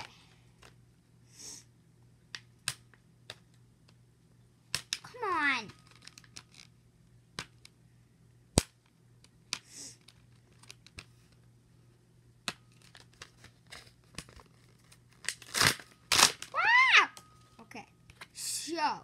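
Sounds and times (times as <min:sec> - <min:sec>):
paper tearing: 0:15.3 - 0:16.4.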